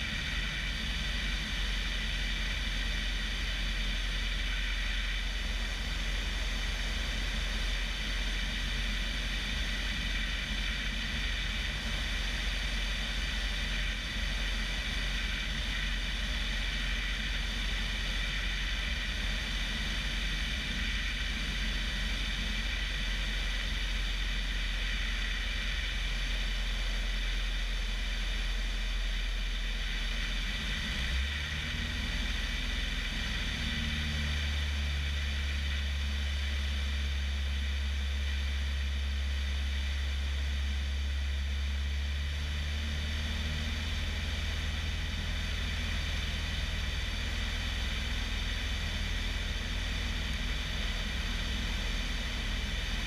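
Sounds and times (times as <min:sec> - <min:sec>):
propeller plane engine drone: 0:00.0 - 0:53.0.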